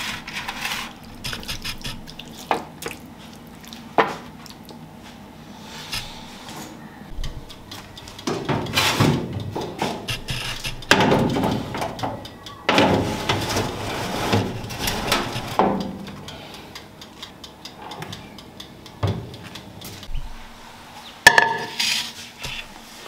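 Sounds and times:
wire rack scraping and rattling: 8.3s - 12.1s, 12.7s - 15.9s
toaster oven door opening: 8.3s - 15.8s.

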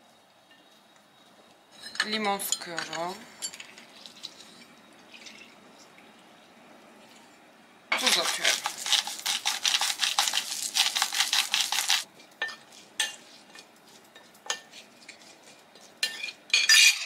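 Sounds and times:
salt grinder grinding: 8.0s - 12.1s.

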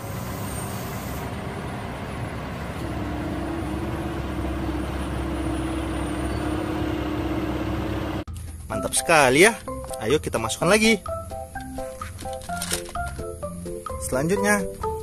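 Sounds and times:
diesel truck engine rumbling: 0.0s - 8.8s.

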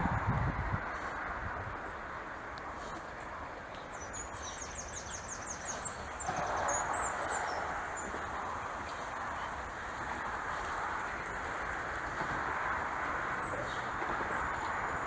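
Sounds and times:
steady rushing background: 0.0s - 15.0s
small bird chirping: 3.8s - 9.2s.

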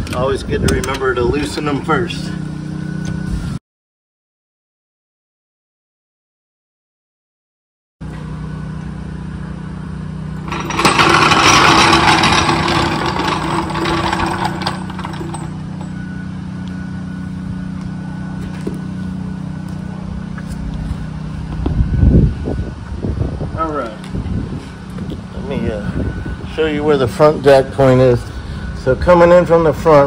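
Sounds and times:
floor jack rolling on concrete: 10.4s - 16.0s
jack clacking: 10.4s - 16.0s.

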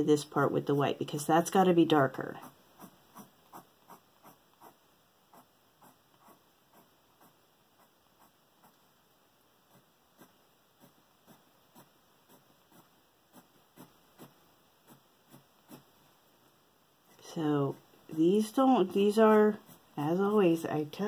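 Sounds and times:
pencil scratching on paper: 1.6s - 8.9s, 9.6s - 16.0s, 18.0s - 21.0s.

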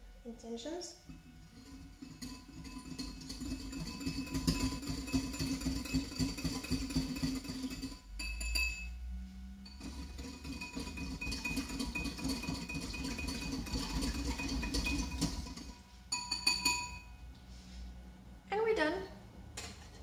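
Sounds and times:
whisk clinking in ceramic bowl: 1.1s - 8.9s, 9.7s - 17.1s.

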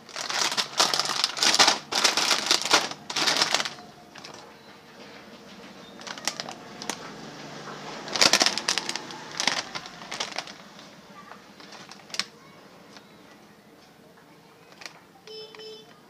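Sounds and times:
plastic chip packet crinkling: 0.0s - 4.6s, 5.8s - 13.1s, 14.6s - 15.6s.

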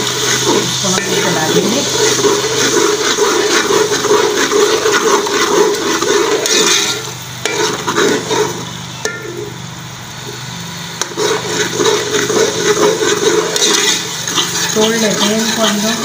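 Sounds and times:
metal spoon scraping pot: 0.0s - 9.5s, 11.0s - 16.0s
eggs sizzling in oil: 0.0s - 16.0s.

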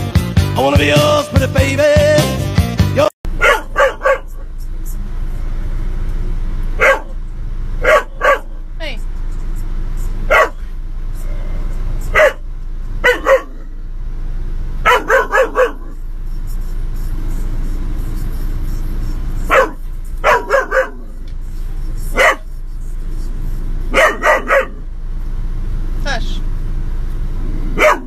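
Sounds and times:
dog barking: 3.3s - 4.5s, 6.8s - 7.2s, 7.8s - 8.6s, 10.2s - 10.8s, 12.0s - 13.7s, 14.8s - 16.0s, 19.4s - 21.2s, 22.0s - 22.6s, 23.9s - 24.9s, 27.7s - 28.0s
steady low hum: 3.3s - 28.0s.

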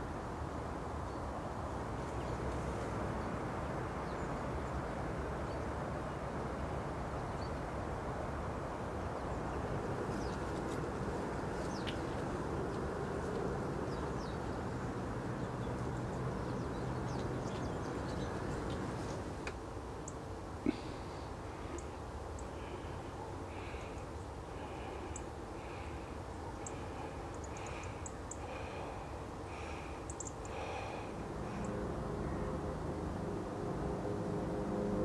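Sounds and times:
low rumble of background noise: 0.0s - 35.0s.

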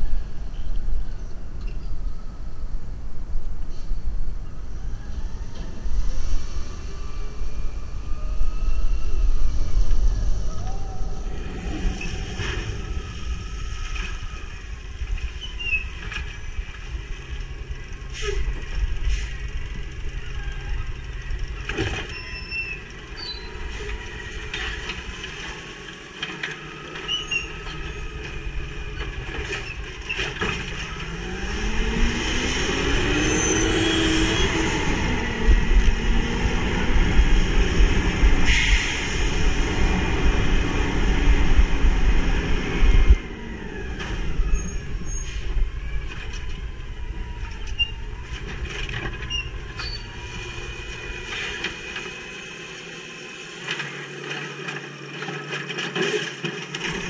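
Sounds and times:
garbage truck engine: 4.4s - 57.0s
air brake hisses: 19.0s - 19.4s, 38.4s - 39.6s.

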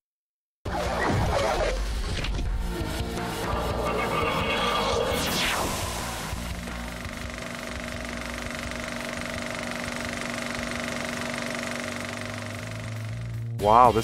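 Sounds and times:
projector hum: 5.5s - 13.5s
film projector clatter: 6.8s - 13.4s.

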